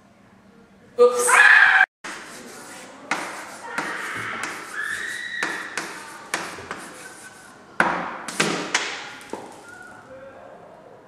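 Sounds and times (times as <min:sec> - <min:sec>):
chalk tapping on blackboard: 0:02.0 - 0:09.6
chalk squeak: 0:02.1 - 0:07.6
knock on blackboard: 0:07.8 - 0:09.5.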